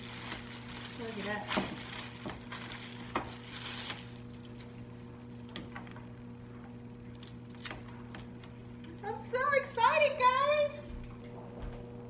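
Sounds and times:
plastic wrapping rustling: 0.0s - 5.1s.

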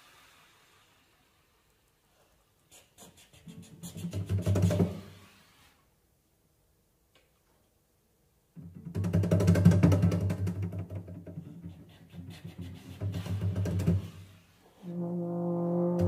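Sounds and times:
clarinet horn and cello trio: 14.8s - 16.0s.

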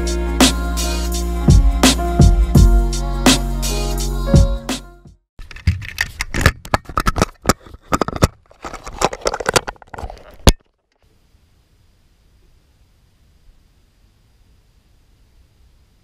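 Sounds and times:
sharp clicks and knocks: 5.4s - 10.8s.

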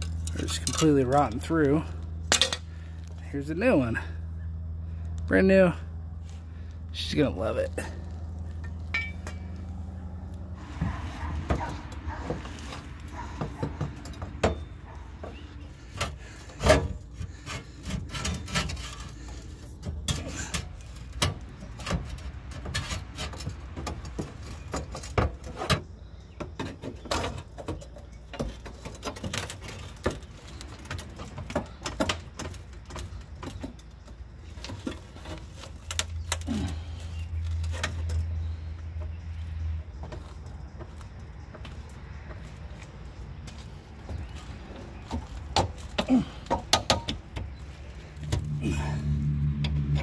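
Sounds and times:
steady low hum: 0.0s - 24.6s
metallic clanks and taps: 45.0s - 47.5s.

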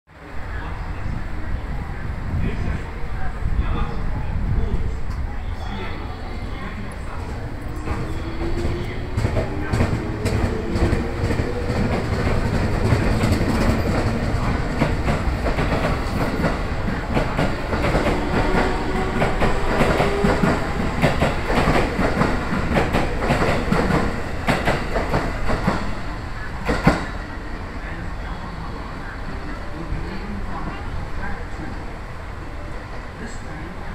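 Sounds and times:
train wheels clacking on rail joints: 7.7s - 25.9s.

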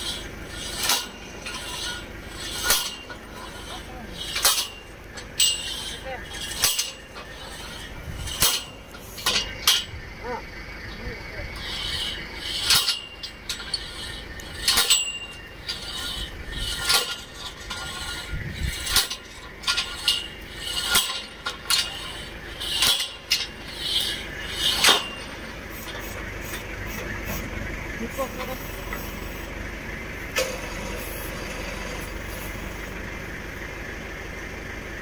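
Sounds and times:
metallic clicks and clanks: 0.0s - 10.0s, 11.5s - 29.2s
low rumble: 0.0s - 22.6s
short squeaks: 0.0s - 29.5s.

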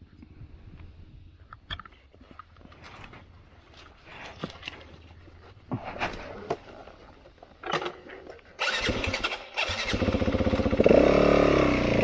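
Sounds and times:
dirt bike engine starting and running: 7.6s - 12.0s.

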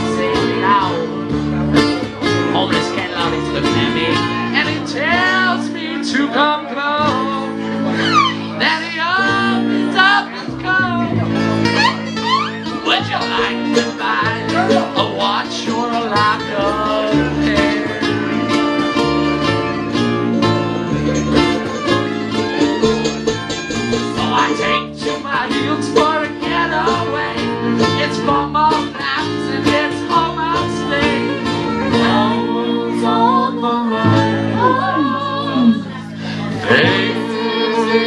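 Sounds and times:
banjo: 0.0s - 38.0s
strummed acoustic guitars: 0.0s - 38.0s
upright bass: 0.0s - 38.0s
bowed fiddle: 17.2s - 25.0s.

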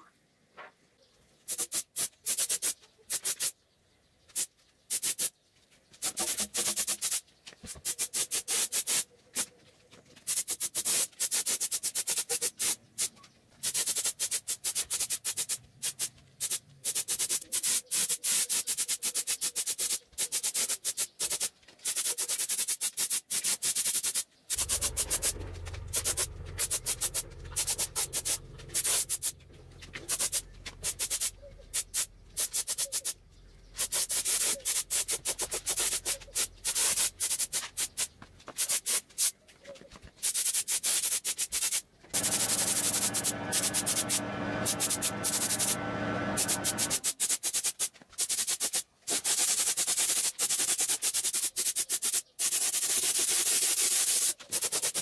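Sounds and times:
hand sanding strokes: 6.0s - 9.5s, 10.2s - 33.2s, 33.8s - 39.3s, 40.2s - 55.0s
low hum: 24.6s - 32.3s, 42.2s - 47.0s.

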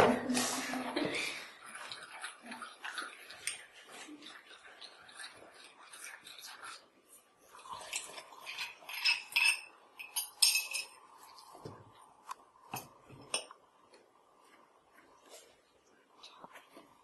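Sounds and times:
glass tumbler clinking and scraping: 7.7s - 11.0s.

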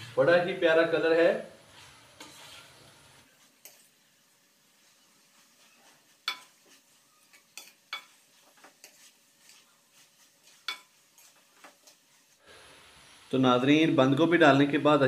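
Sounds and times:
faint frying sizzle: 0.0s - 14.8s
wooden spoon stirring in pan: 1.6s - 12.4s
spoon knocking against pan: 6.2s - 6.8s.

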